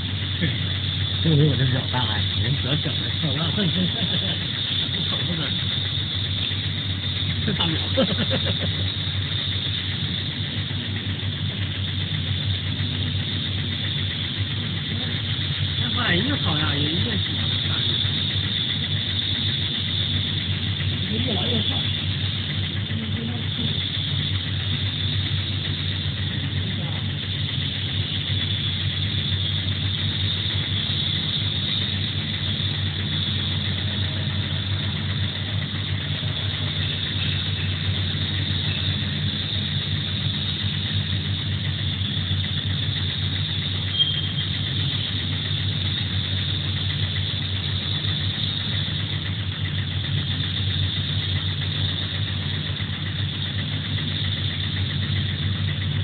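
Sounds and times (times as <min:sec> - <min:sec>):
machine motor humming and whining: 0:00.0 - 0:56.0.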